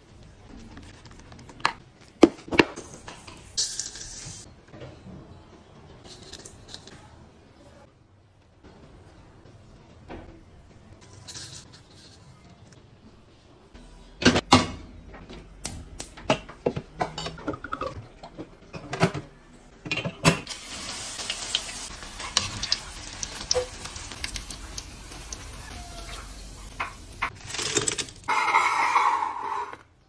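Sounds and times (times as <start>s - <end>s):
kitchenware clinking: 16.3s - 20.5s
deep-frying sizzle with crackles: 20.5s - 27.9s.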